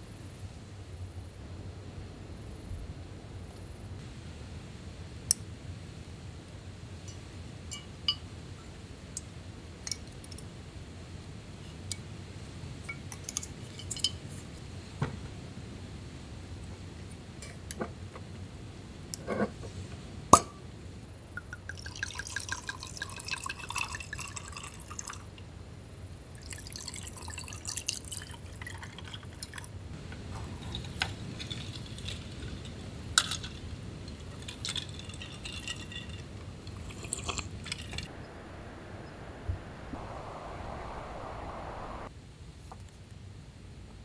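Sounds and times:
wine glugging into cups: 0:21.4 - 0:25.2.

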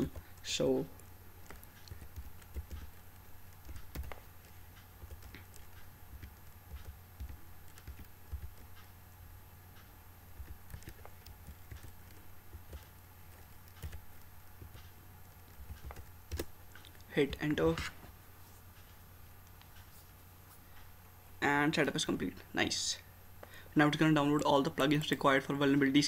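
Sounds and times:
computer keyboard keystrokes: 0:00.0 - 0:08.9, 0:09.8 - 0:17.1
low steady hum: 0:00.0 - 0:26.0.

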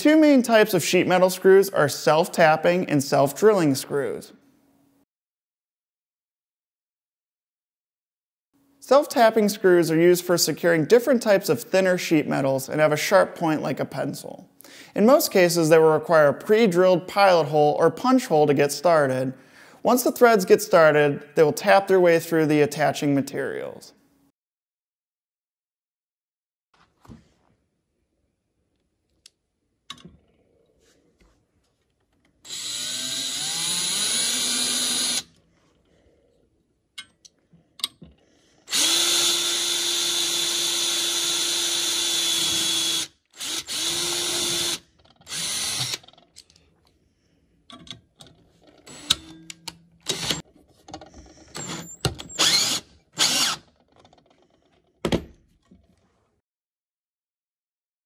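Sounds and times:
cordless drill boring metal: 0:32.4 - 0:35.3, 0:38.7 - 0:46.1, 0:48.9 - 0:49.3, 0:50.0 - 0:50.4, 0:51.5 - 0:53.7
driver running a screw: 0:32.4 - 0:35.3, 0:38.7 - 0:46.1, 0:50.0 - 0:50.4, 0:51.6 - 0:53.7.

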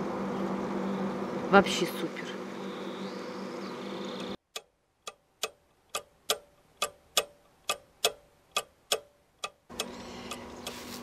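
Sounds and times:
clock ticking: 0:04.5 - 0:10.8.

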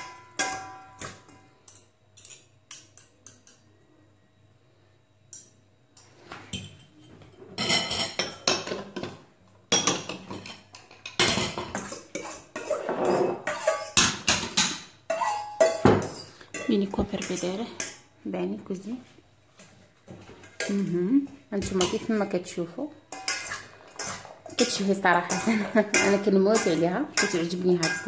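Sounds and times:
steel bowls clattering and scraping: 0:00.0 - 0:02.4, 0:10.3 - 0:18.0, 0:23.1 - 0:28.0
fork clinking against steel bowl: 0:00.0 - 0:03.6, 0:11.1 - 0:18.0, 0:23.1 - 0:28.0.

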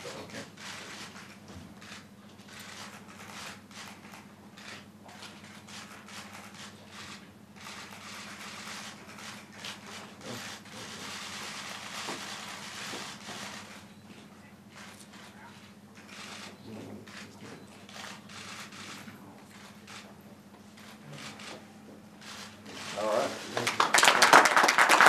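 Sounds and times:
low electrical hum: 0:00.0 - 0:25.0
camera shutters clicking: 0:00.6 - 0:13.9, 0:16.0 - 0:20.1, 0:20.8 - 0:21.6, 0:22.2 - 0:23.2.

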